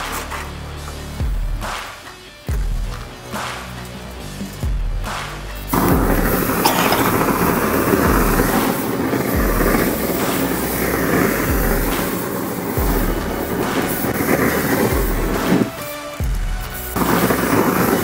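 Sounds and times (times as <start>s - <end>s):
music with deep bass beat: 0.0s - 18.0s
hand-held flame roaring: 5.6s - 18.0s.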